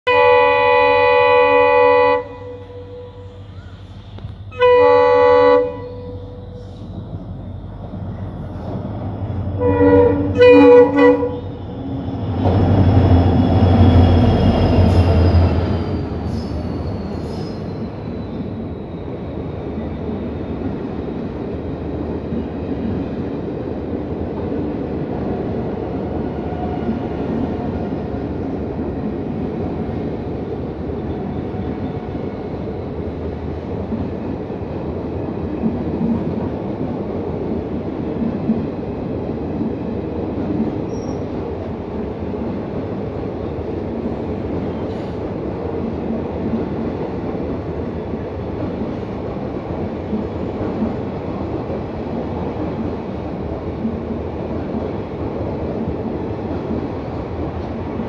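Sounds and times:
locomotive horn blasts: 0:00.1 - 0:03.4, 0:04.5 - 0:06.5, 0:09.6 - 0:11.5
train coaches rolling: 0:00.1 - 0:58.0.

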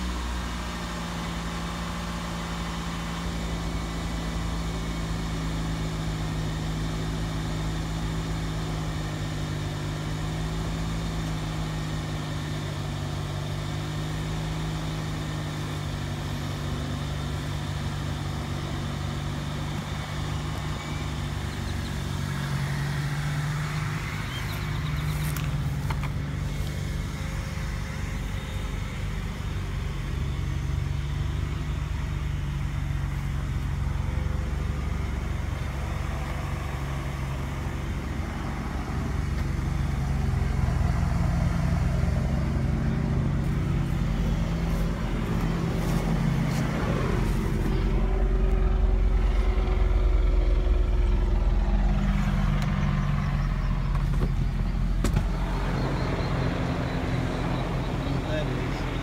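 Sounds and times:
car engine idling: 0:00.0 - 0:59.0
helicopter drone overhead: 0:33.9 - 0:59.0.

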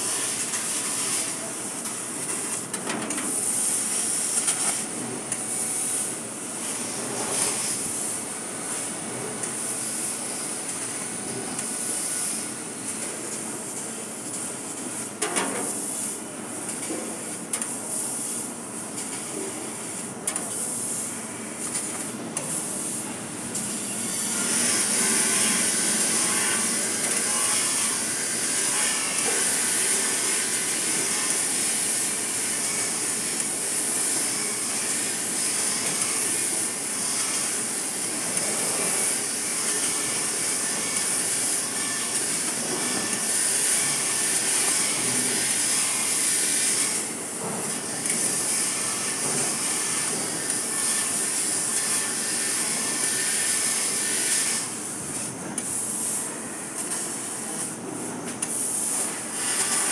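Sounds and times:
laser cutter hissing: 0:19.2 - 0:59.9.

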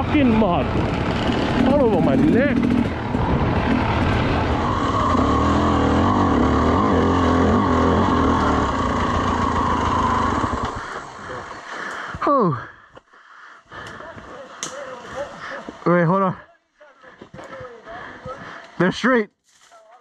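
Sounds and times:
dirt bike engine running: 0:00.0 - 0:12.2.

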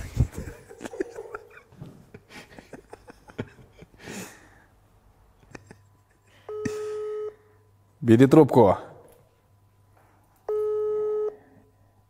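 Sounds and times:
person chuckling quietly: 0:00.0 - 0:04.6, 0:05.4 - 0:07.1
breathing: 0:04.0 - 0:04.8.

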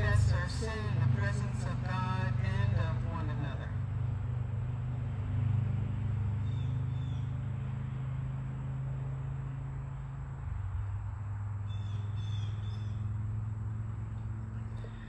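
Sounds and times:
low motor hum: 0:00.0 - 0:15.0
high bird chirp: 0:11.7 - 0:13.0.

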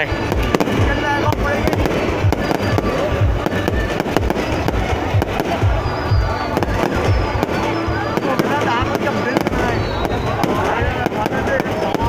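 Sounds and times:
fireworks bangs and crackles: 0:00.0 - 0:12.0
music playing: 0:00.0 - 0:12.0.

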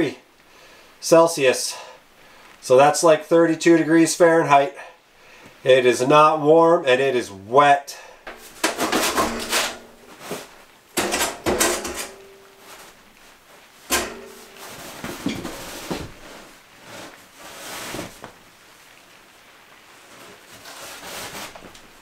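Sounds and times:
metal scraping and rattling: 0:08.4 - 0:13.0, 0:13.9 - 0:16.4
metal pipe ringing: 0:11.0 - 0:13.0, 0:13.9 - 0:15.8.

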